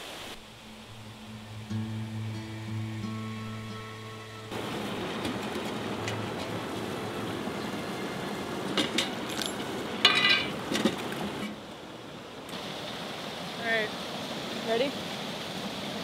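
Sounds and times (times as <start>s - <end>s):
steady background hiss: 0.0s - 16.0s
metal can lid clinking: 8.8s - 10.6s.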